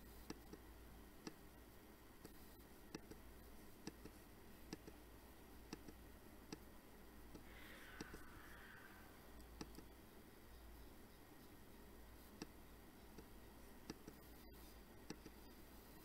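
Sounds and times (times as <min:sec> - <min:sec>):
computer mouse clicks: 0:00.2 - 0:00.6, 0:02.2 - 0:03.2, 0:03.8 - 0:05.0, 0:05.7 - 0:06.7, 0:07.3 - 0:08.8, 0:09.4 - 0:09.9, 0:12.4 - 0:15.5.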